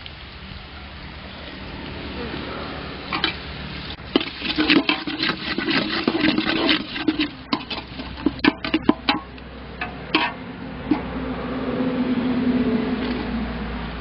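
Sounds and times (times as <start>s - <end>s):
metal ladle scraping a pot: 3.1s - 3.4s, 4.1s - 11.1s
ladle knocking on pot: 4.2s - 11.0s.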